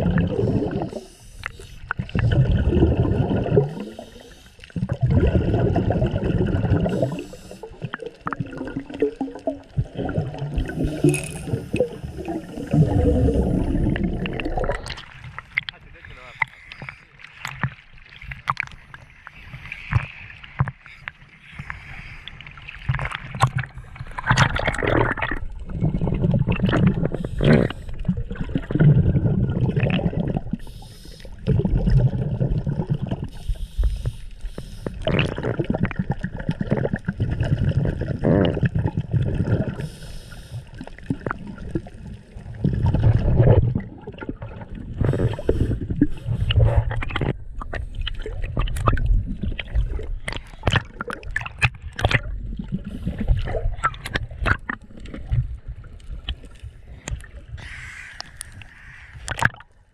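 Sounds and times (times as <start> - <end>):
bubbling exhalations underwater: 0.0 - 1.2, 1.9 - 17.8, 22.7 - 34.0, 34.8 - 40.0, 40.7 - 59.7
hissing regulator inhalations: 7.0 - 7.8, 10.6 - 14.1, 30.6 - 31.4, 33.3 - 35.0, 39.8 - 40.8
sharp clicks and crackles: 14.0 - 19.1, 46.5 - 52.4, 58.0 - 59.8.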